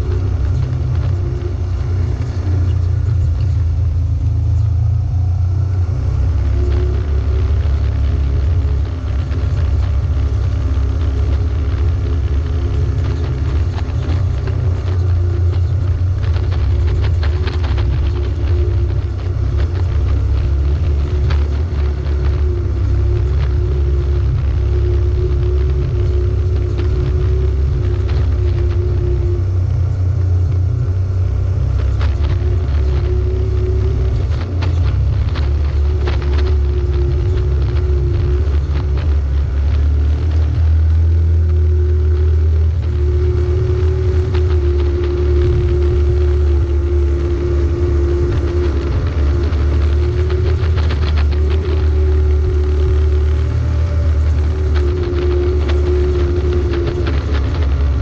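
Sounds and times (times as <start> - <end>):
off-road vehicle engine under load: 0.0 - 58.0.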